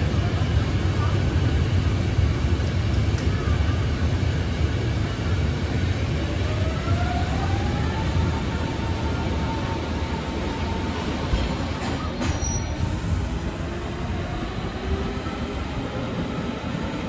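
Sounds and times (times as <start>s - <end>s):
train low rumble: 0.0s - 17.0s.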